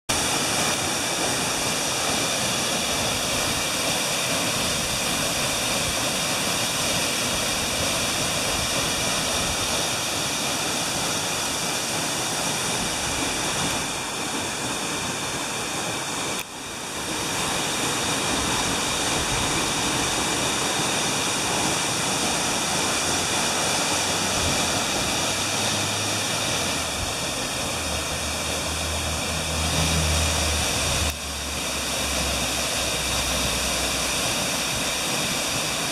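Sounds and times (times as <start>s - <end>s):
waterfall rushing: 0.1s - 35.9s.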